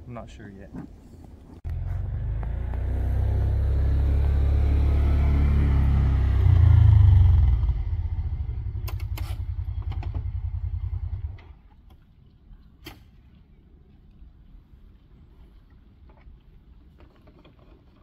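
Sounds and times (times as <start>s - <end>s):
vehicle engine idling: 1.6s - 11.6s
sharp clicks: 8.8s - 10.3s.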